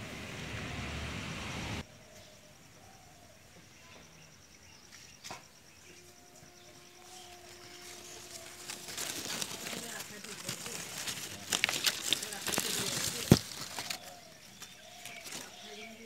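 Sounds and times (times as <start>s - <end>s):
insect chirping: 1.8s - 16.0s.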